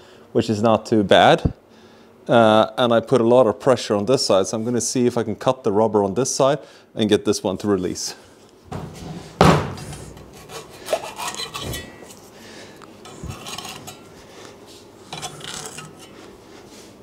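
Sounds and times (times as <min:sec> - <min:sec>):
tool scraping rubber: 0:10.2 - 0:11.9, 0:13.0 - 0:14.1, 0:15.1 - 0:16.2.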